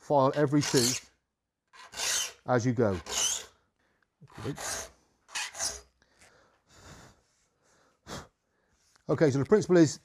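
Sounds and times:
file rasping on saw teeth: 0:00.4 - 0:01.1, 0:01.8 - 0:03.6, 0:04.3 - 0:05.9.

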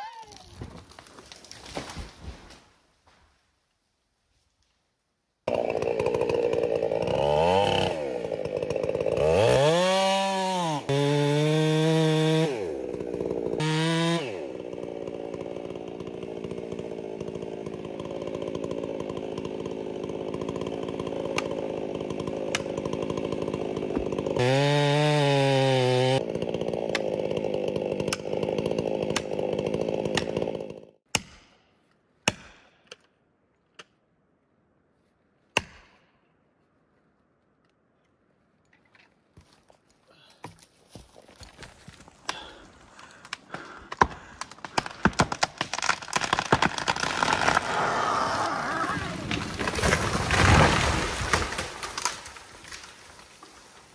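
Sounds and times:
chainsaw revving and cutting: 0:05.5 - 0:31.0, 0:43.1 - 0:52.3
axe striking wedge: 0:31.1 - 0:31.6, 0:32.2 - 0:32.7.

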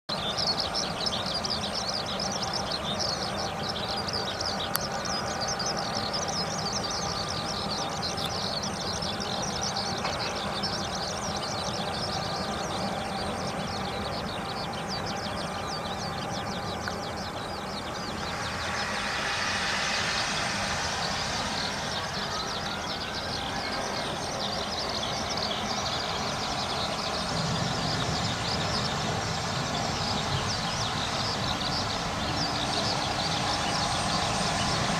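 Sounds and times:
steady low rumble: 0:00.1 - 0:34.9
distant jet airliner rushing: 0:17.0 - 0:34.9.

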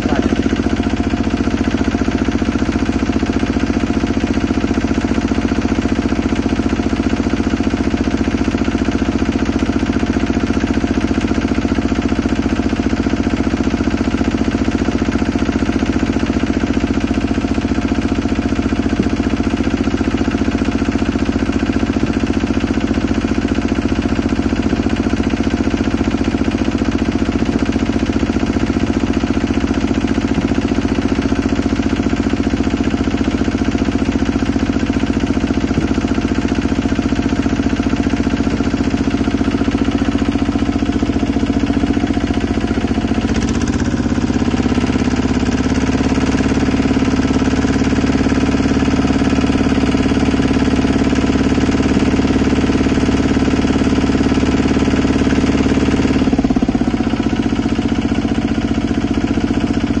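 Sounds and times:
small engine knocking: 0:00.0 - 1:00.0.

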